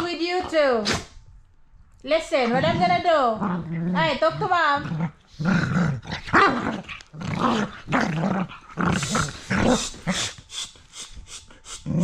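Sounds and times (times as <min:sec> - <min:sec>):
dogs growling: 0:02.3 - 0:10.4.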